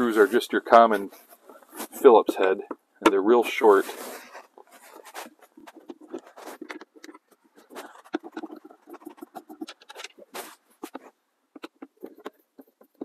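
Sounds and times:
screwdriver scratching and clicking: 0:04.4 - 0:13.0
small ticks: 0:04.4 - 0:13.0.

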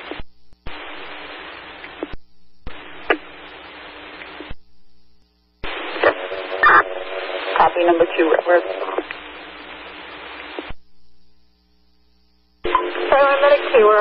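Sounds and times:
radio static hiss: 0:00.0 - 0:14.0
radio squelch clicks: 0:05.6 - 0:10.8.

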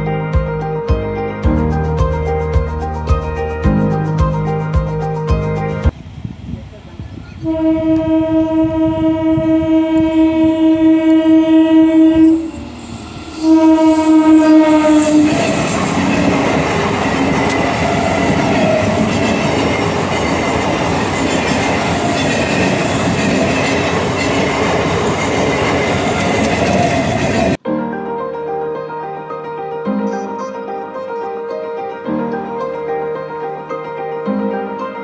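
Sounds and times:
train horn blasts: 0:07.4 - 0:16.0
train coaches clattering over rails: 0:15.2 - 0:27.6.

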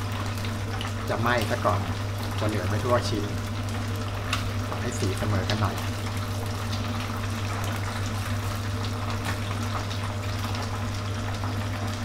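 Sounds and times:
oil sizzling and bubbling: 0:00.0 - 0:12.0.

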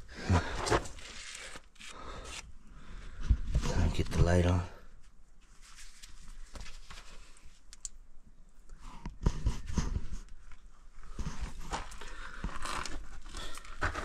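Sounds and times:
scrapes and rustles on rock: 0:08.8 - 0:14.0.

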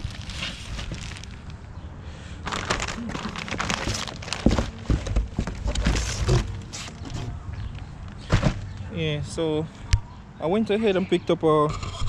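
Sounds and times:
plastic film crinkling: 0:00.0 - 0:01.6, 0:02.4 - 0:06.7
dull thumps: 0:03.4 - 0:07.2.

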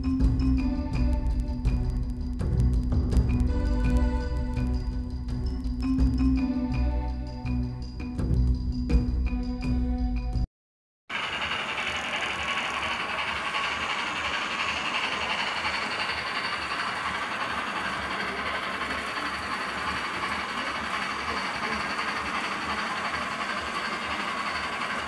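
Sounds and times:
model train motor whirring: 0:11.1 - 0:25.0.

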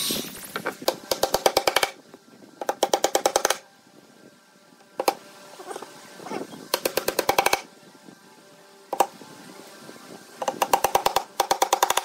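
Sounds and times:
hammer striking nails into wood: 0:00.9 - 0:02.0, 0:10.4 - 0:12.0.

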